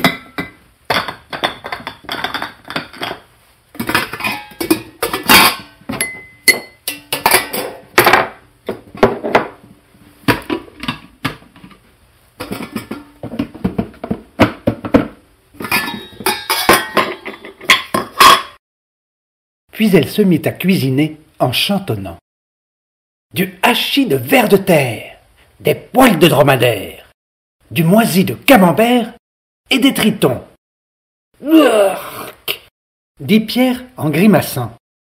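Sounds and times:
pots and utensils clattering: 0:00.0 - 0:09.6, 0:10.3 - 0:11.8, 0:12.4 - 0:18.6.

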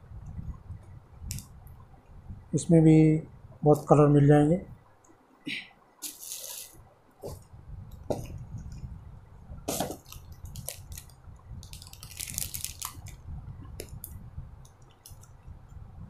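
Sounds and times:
plastic wrapping rustling: 0:06.0 - 0:07.4, 0:09.7 - 0:13.2.

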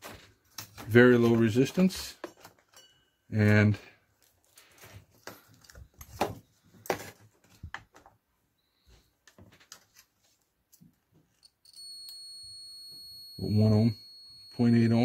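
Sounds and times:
multimeter probes clicking and rustling: 0:00.0 - 0:02.9.

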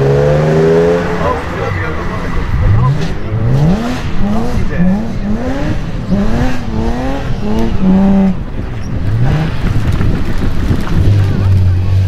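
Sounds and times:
car engine revving hard: 0:00.0 - 0:12.0.

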